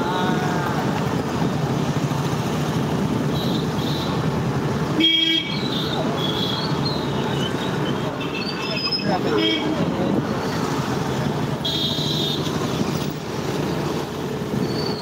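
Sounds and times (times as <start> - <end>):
street traffic noise: 0.0 - 15.0
vehicle horn blast: 5.0 - 5.6.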